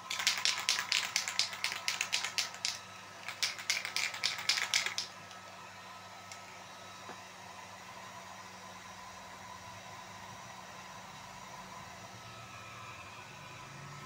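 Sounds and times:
spray can rattling: 0:00.0 - 0:05.1.

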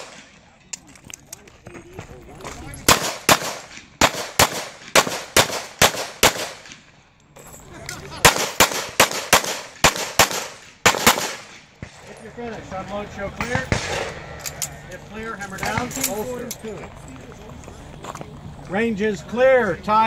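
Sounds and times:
pistol shots in pairs: 0:02.8 - 0:06.8, 0:08.2 - 0:11.7.

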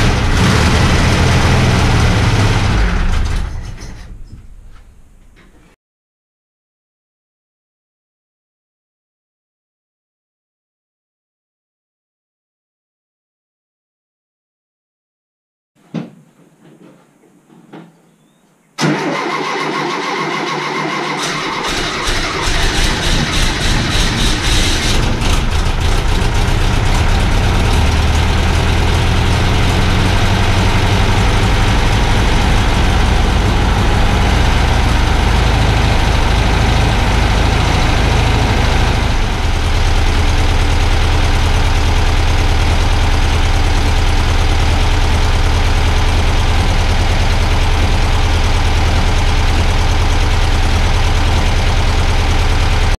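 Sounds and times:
car engine idling: 0:00.0 - 0:05.5, 0:21.3 - 0:53.0.

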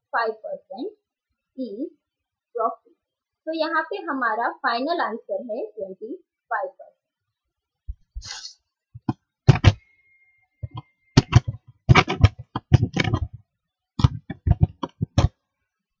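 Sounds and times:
sharp knocks and clicks: 0:09.0 - 0:09.8, 0:10.6 - 0:13.4, 0:14.0 - 0:15.4
faint high steady tone: 0:09.8 - 0:11.2.

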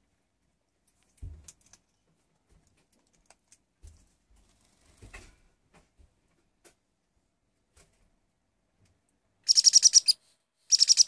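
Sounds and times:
faint clicks and light taps: 0:00.4 - 0:06.9.

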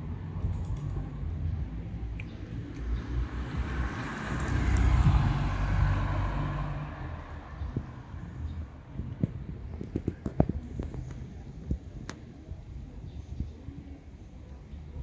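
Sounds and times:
steady low rumble: 0:00.0 - 0:13.9
vehicle passing: 0:02.5 - 0:08.8.

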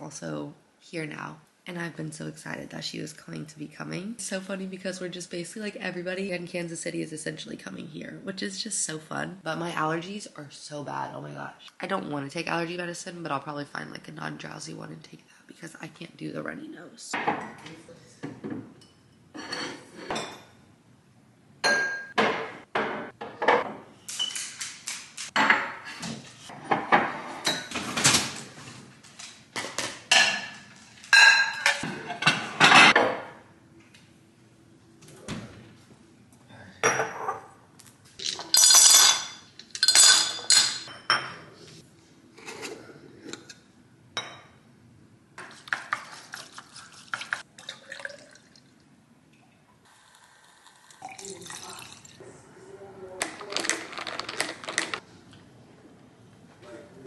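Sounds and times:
dishes and glasses clinking: 0:17.2 - 0:17.6, 0:18.4 - 0:20.6, 0:21.6 - 0:24.6, 0:26.6 - 0:28.2, 0:30.1 - 0:33.4, 0:36.8 - 0:37.5, 0:38.2 - 0:41.5, 0:44.2 - 0:44.6.

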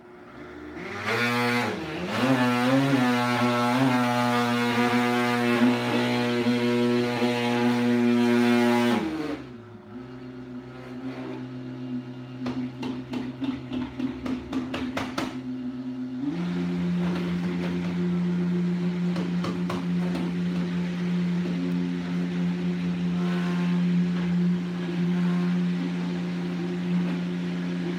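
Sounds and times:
blender motor running: 0:00.0 - 0:27.9
thick mixture knocking and churning: 0:12.4 - 0:15.4, 0:16.4 - 0:27.9.

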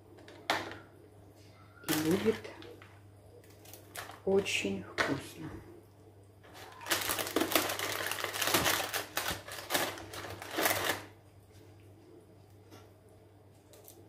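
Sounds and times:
crackling rustle of handling: 0:01.4 - 0:04.7, 0:06.4 - 0:14.0.

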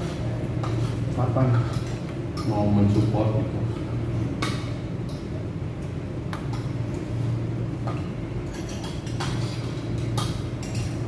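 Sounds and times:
low background hum: 0:00.0 - 0:11.0
cutlery and plates clinking: 0:08.5 - 0:11.0.

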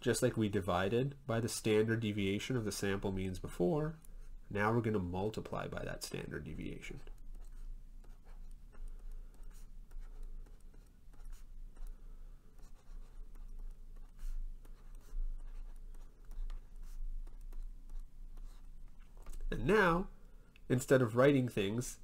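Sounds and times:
low electrical hum: 0:00.0 - 0:22.0
stylus scratching on pen tablet: 0:06.6 - 0:19.0.

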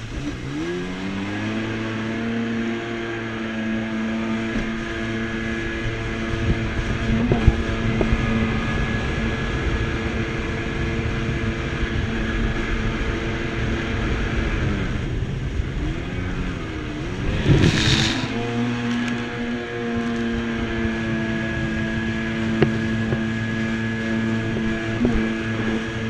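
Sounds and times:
jet ski engine running: 0:00.0 - 0:26.0
wind and water rushing: 0:00.0 - 0:26.0.

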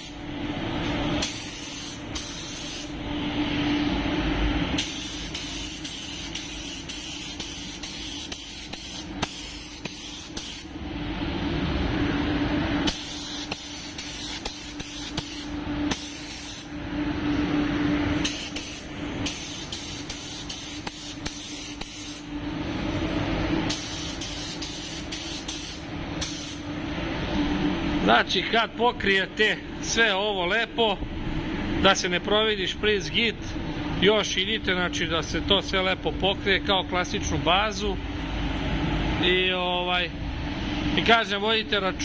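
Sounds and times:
steady low hum: 0:00.0 - 0:42.0
spray gun hissing: 0:01.2 - 0:02.9, 0:04.8 - 0:10.7, 0:12.9 - 0:16.7, 0:18.2 - 0:22.3, 0:23.7 - 0:26.6.

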